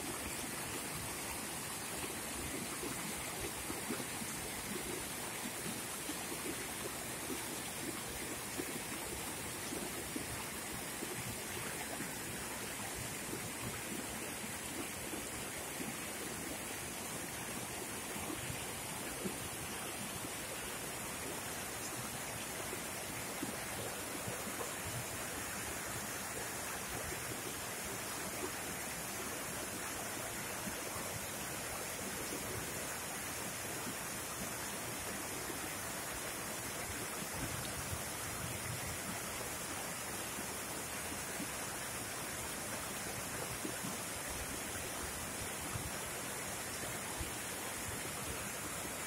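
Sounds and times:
stream rushing over boulders: 0.0 - 49.0.

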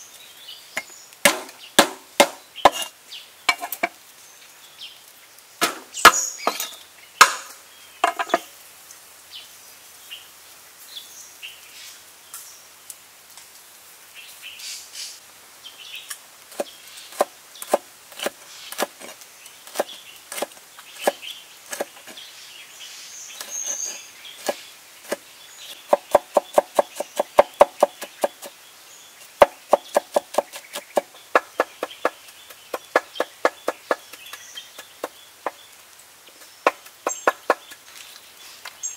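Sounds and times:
knife chopping on wooden board: 1.2 - 2.9, 19.7 - 22.2, 24.4 - 25.2, 25.9 - 28.5, 29.4 - 35.1.

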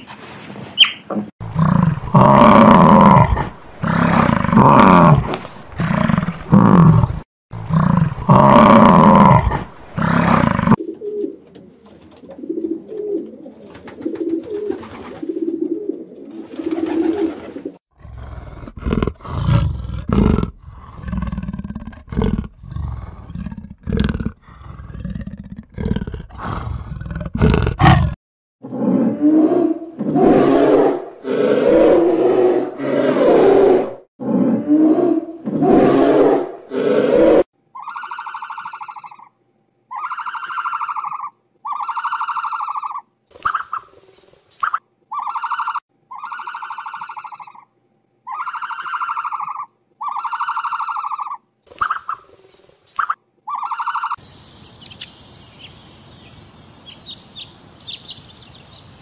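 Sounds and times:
big cat grunting roars: 1.5 - 10.8, 17.9 - 37.4
animal growls: 17.9 - 37.5
high nasal animal calls: 35.8 - 39.3, 39.9 - 43.9, 44.6 - 52.2, 53.0 - 54.2.

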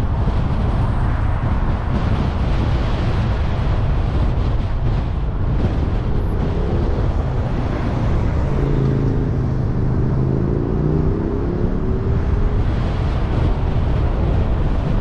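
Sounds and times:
engine hum: 0.0 - 15.0
road and wind noise: 0.0 - 15.0.

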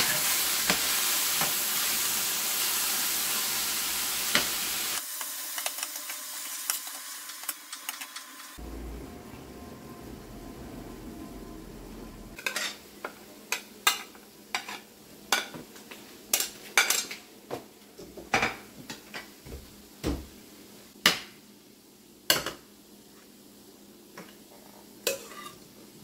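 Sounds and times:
steady low hum: 8.6 - 12.4
metal utensil scraping a pan: 12.4 - 12.8, 13.5 - 15.5, 25.0 - 25.6.

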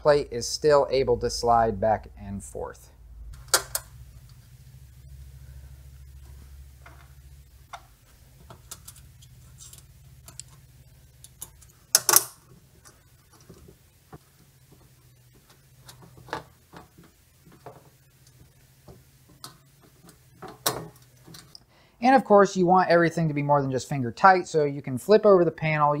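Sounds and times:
faint low hum: 0.0 - 26.0
metallic clicks of screws and nuts: 11.2 - 13.5.

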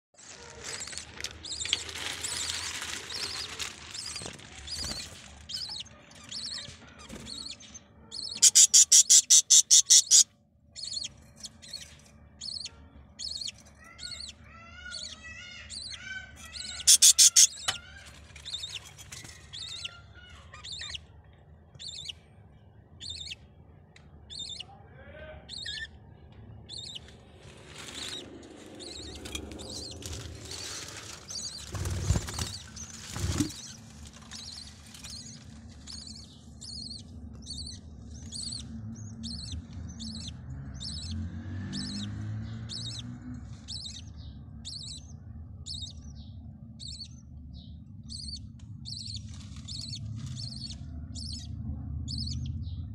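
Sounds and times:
budgerigar chirping: 3.1 - 21.2, 21.8 - 22.2, 23.0 - 23.5, 24.2 - 24.8, 25.5 - 26.0, 26.7 - 27.0, 28.8 - 30.1, 31.3 - 33.8, 34.4 - 42.1, 42.7 - 43.1, 43.7 - 47.2, 48.0 - 51.5, 52.1 - 52.5
budgerigar harsh squawks: 5.5 - 11.1, 12.4 - 18.0.

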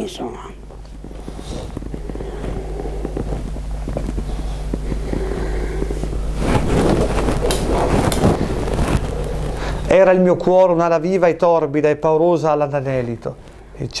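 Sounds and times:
steady low hum: 0.0 - 14.0
rustling and rubbing: 0.8 - 10.2.

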